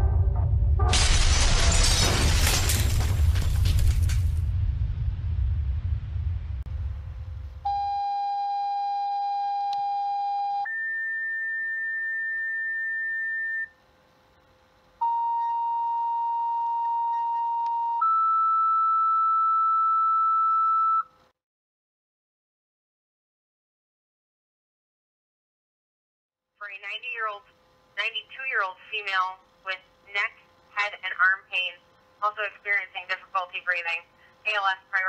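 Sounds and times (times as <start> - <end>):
low rumble: 0.0 - 8.0
two-tone pager tones: 15.0 - 21.1.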